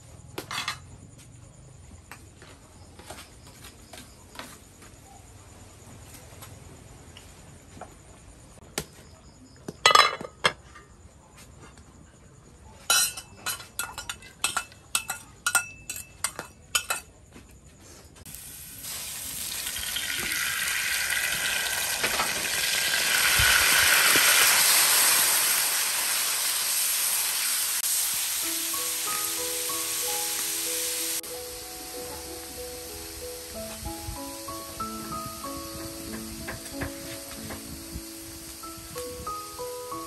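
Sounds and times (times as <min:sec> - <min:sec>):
utensils clinking on steel wok: 0:12.9 - 0:17.2
garlic and meat sizzling in oil: 0:18.3 - 0:40.0.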